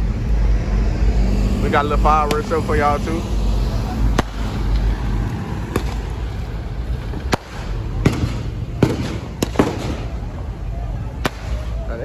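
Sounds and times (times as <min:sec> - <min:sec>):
steady low rumble: 0:00.0 - 0:12.0
sharp firework bangs: 0:04.1 - 0:06.4, 0:07.2 - 0:10.3, 0:11.2 - 0:11.9.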